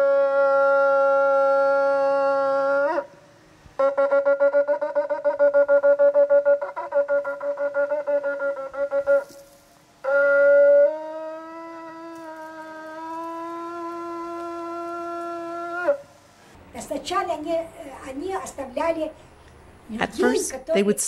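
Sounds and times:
shofar blasts: 0:05.6 - 0:09.4, 0:10.0 - 0:16.2.

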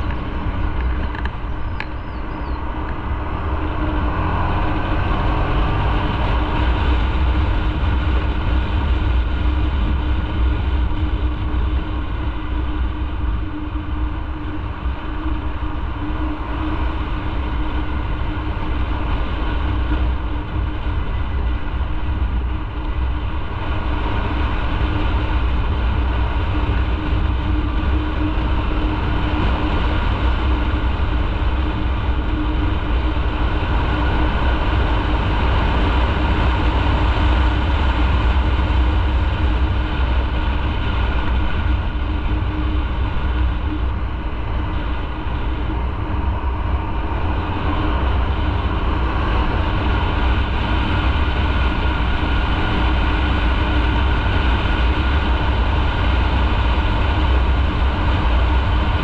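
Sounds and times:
motorcycle engine drone: 0:00.0 - 0:59.0
wind and road noise: 0:00.0 - 0:59.0.

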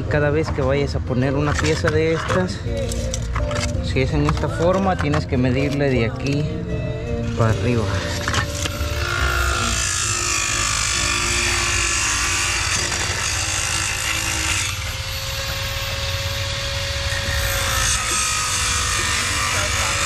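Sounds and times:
power tool running: 0:07.2 - 0:20.0.

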